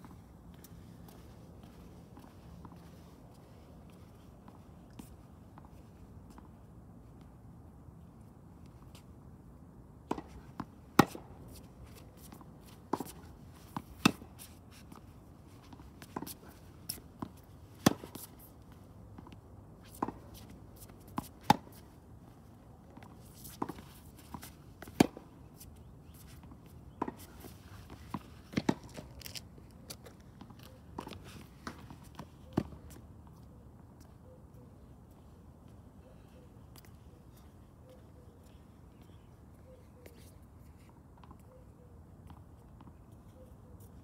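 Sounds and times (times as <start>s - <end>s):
tennis balls struck by rackets: 11.0s - 11.6s, 16.0s - 18.3s
tennis balls bouncing on court: 19.2s - 21.8s.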